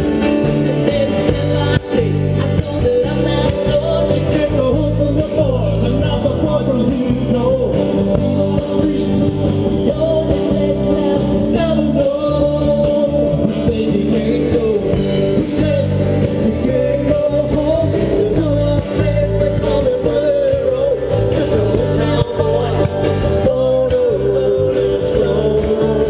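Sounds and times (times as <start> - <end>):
live rock band playing: 0.0 - 26.0.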